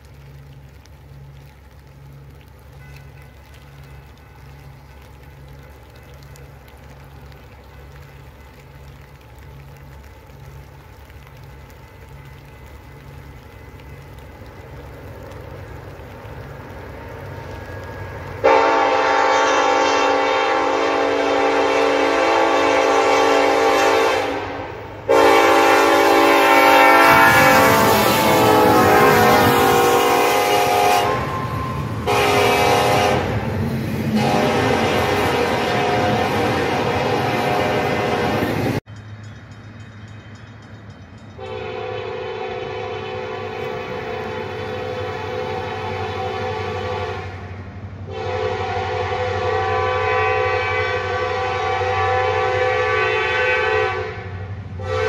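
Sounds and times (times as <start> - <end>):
diesel locomotives rumbling: 0.0 - 55.0
locomotive air horn blasts: 18.4 - 33.4, 34.1 - 38.8, 41.4 - 55.0.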